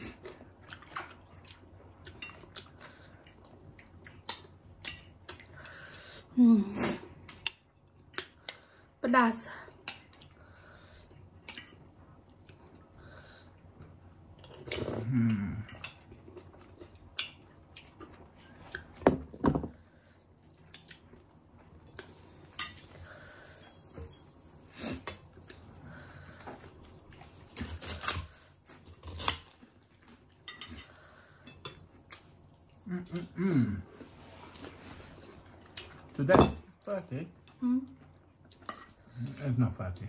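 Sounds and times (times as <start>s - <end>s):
chewing: 0.0s - 5.8s, 20.2s - 23.4s, 37.4s - 39.5s.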